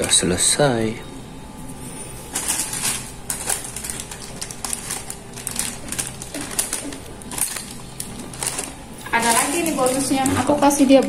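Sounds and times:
plastic packets crinkling: 2.2s - 11.0s.

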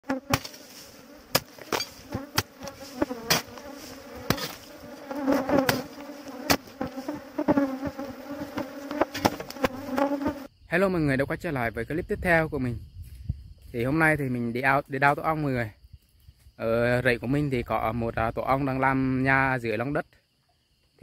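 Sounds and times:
bees buzzing: 0.0s - 10.5s.

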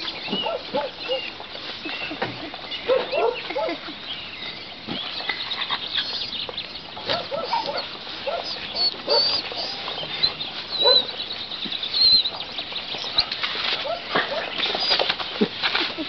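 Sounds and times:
dogs whining and yelping: 0.3s - 1.3s, 2.8s - 3.9s, 5.3s - 6.4s, 7.0s - 11.2s, 11.9s - 12.4s, 13.0s - 15.1s.

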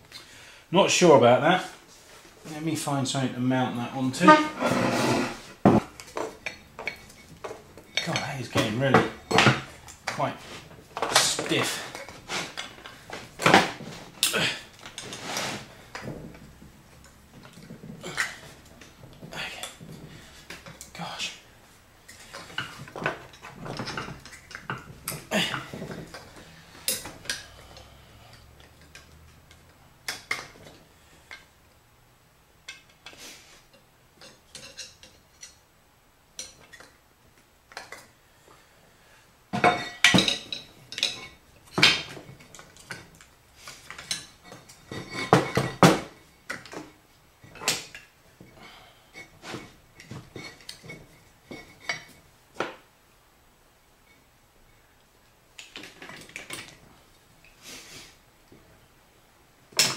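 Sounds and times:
metal tools clinking and clattering: 34.2s - 35.6s, 39.6s - 43.1s, 43.9s - 46.8s.

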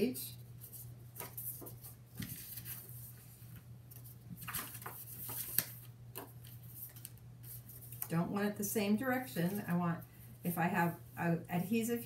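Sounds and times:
cardstock page rustling: 0.7s - 8.1s.

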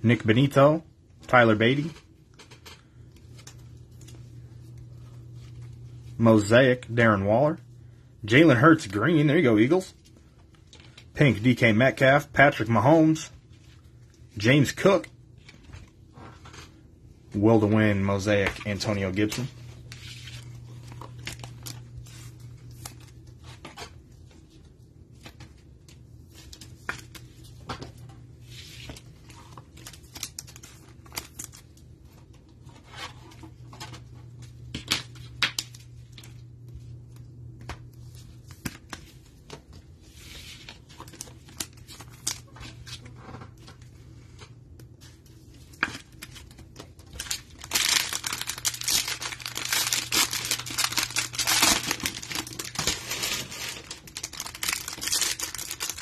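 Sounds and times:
cards and plastic sleeves rustling: 0.1s - 7.5s, 8.3s - 56.0s
plastic wrapper crinkling and tearing: 19.3s - 23.2s, 29.4s - 31.9s, 40.7s - 43.0s, 45.8s - 56.0s.

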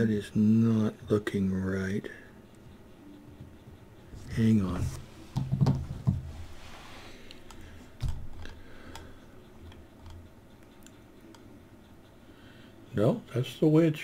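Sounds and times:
dull knock: 5.4s - 6.3s.

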